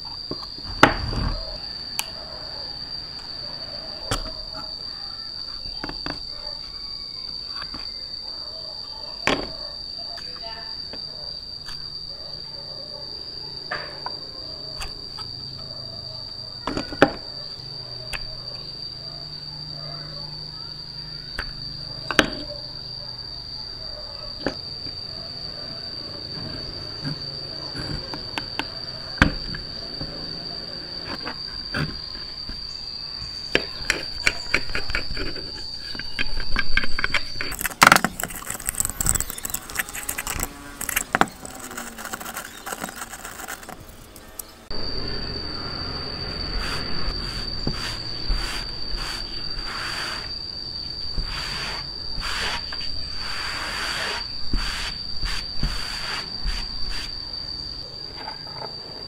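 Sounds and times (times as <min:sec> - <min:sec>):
steady high-pitched tone: 0:24.1 - 0:59.0
metal parts clicking and knocking: 0:34.2 - 0:44.5
brush scrubbing metal: 0:37.5 - 0:44.3, 0:46.6 - 0:50.3.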